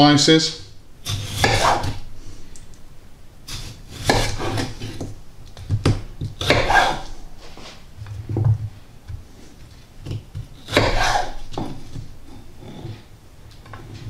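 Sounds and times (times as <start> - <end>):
knife slicing potato: 1.0 - 2.1, 3.5 - 7.2, 9.2 - 12.2.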